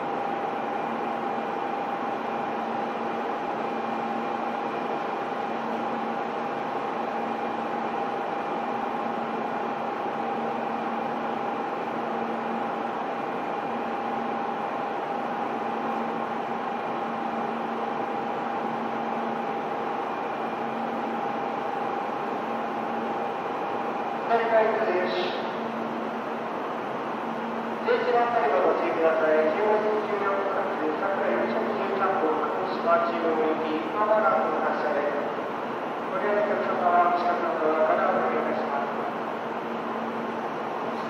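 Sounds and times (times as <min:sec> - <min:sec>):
steady whine: 0:00.0 - 0:41.0.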